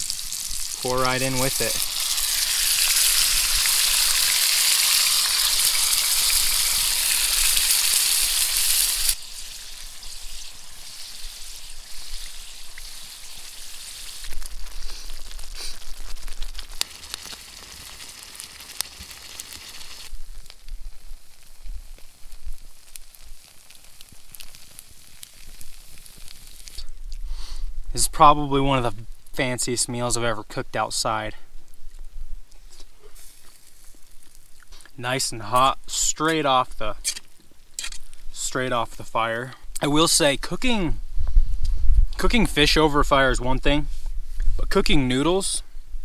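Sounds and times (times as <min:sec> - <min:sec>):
crackling with pops: 0:00.0 - 0:27.6, 0:31.6 - 0:38.4
sausage sizzling in a pan: 0:00.0 - 0:27.7, 0:32.6 - 0:36.2.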